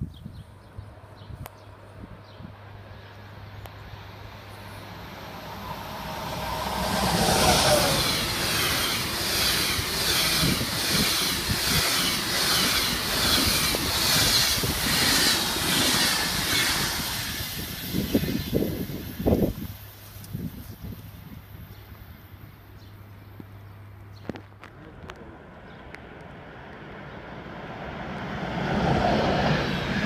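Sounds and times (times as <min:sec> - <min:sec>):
electric locomotive passing: 0:02.6 - 0:24.0, 0:25.1 - 0:30.0
train wheels clattering over rails: 0:06.7 - 0:18.5.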